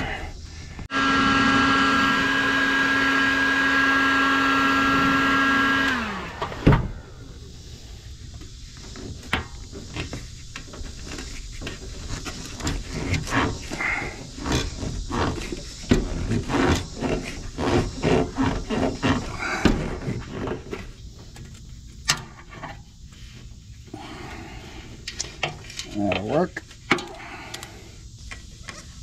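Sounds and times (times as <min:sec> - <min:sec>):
rubber hose rubbing and scraping: 0:07.5 - 0:26.9.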